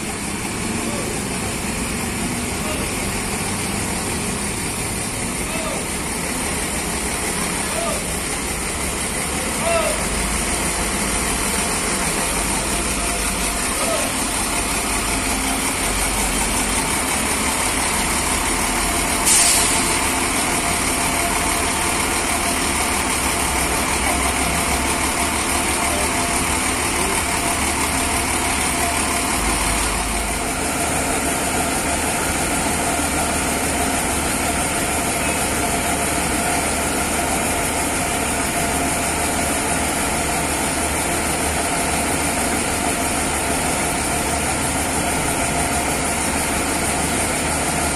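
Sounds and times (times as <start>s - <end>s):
diesel bus engine idling: 0.0s - 47.9s
loud air hiss: 19.1s - 20.5s.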